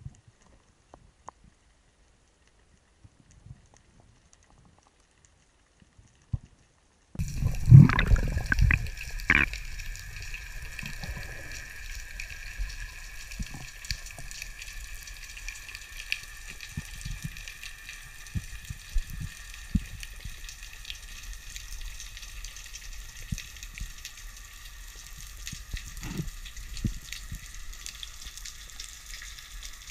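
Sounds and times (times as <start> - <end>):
underwater fine crackle: 0.0 - 29.9
rush of moving water: 7.2 - 14.4
sharp underwater clicks: 7.4 - 14.5.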